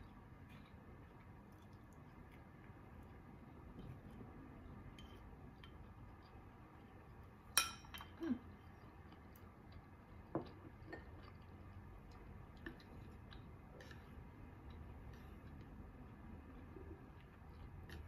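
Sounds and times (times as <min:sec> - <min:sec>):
ceramic bowl set on wooden table: 0:07.5 - 0:08.2.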